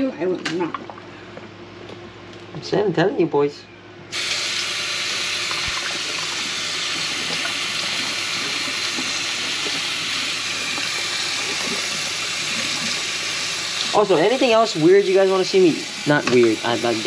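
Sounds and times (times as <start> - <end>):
tap running into sink: 16.2 - 16.6.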